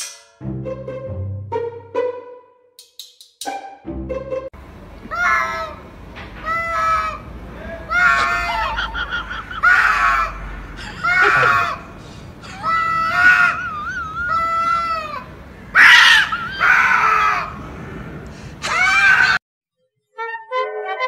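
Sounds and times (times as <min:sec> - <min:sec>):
brassy music: 0:00.4 - 0:02.6, 0:03.5 - 0:04.5
cats yowling: 0:06.4 - 0:11.8, 0:12.5 - 0:17.6.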